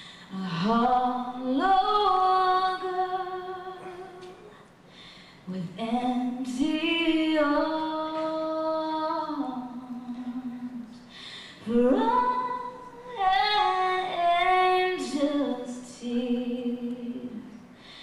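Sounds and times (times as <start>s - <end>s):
woman singing a cappella: 0.3s - 4.5s, 5.5s - 11.0s, 11.6s - 17.7s.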